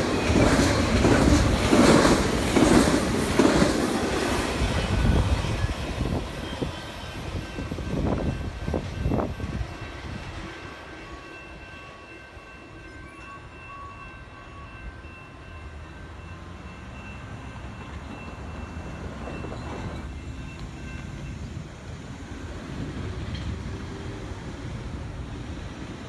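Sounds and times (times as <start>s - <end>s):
train wheels clanking: 0.0s - 13.5s, 22.8s - 24.2s
train rumble: 0.0s - 26.0s.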